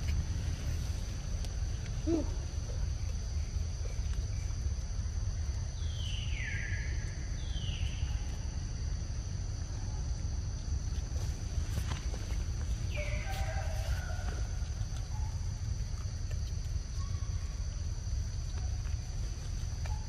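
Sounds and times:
high insect trilling: 0:11.7 - 0:15.4.

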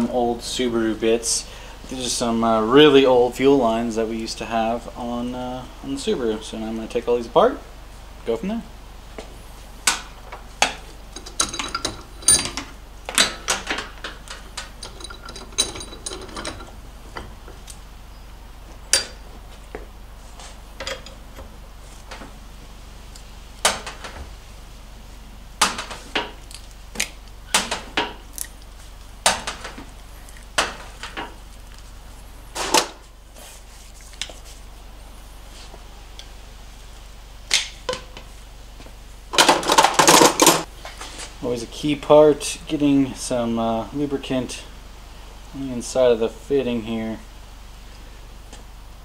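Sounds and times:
wrench clinking on metal fittings: 0:11.2 - 0:13.7, 0:14.3 - 0:16.8.

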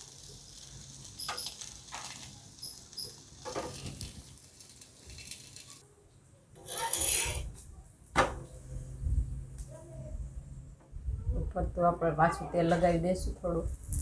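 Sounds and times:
spoon and spatula scraping a griddle: 0:00.0 - 0:05.8, 0:06.6 - 0:07.6.

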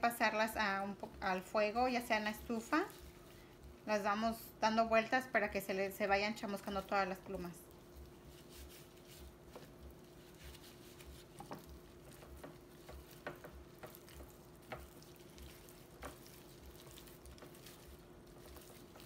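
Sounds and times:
raw chicken squelching: 0:07.7 - 0:19.0.

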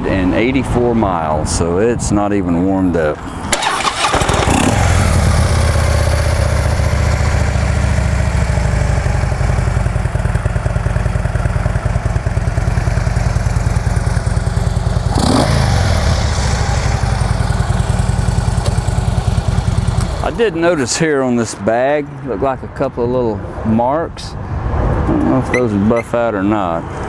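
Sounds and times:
motorcycle engine idling: 0:03.9 - 0:20.3.

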